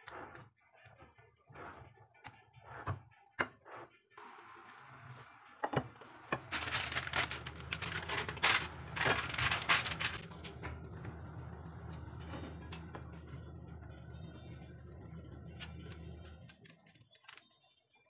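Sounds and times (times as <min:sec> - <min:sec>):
steady low hum: 0:06.4 - 0:17.0.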